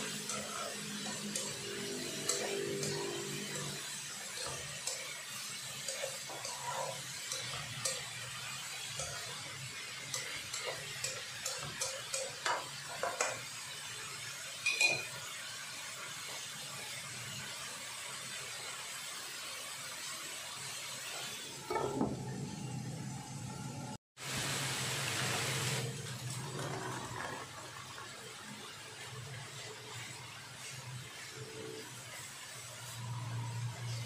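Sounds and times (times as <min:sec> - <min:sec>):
spatula scraping and tapping wok: 0:00.0 - 0:17.0
faint frying sizzle: 0:00.0 - 0:34.0
spatula clinking on plate: 0:14.6 - 0:15.1.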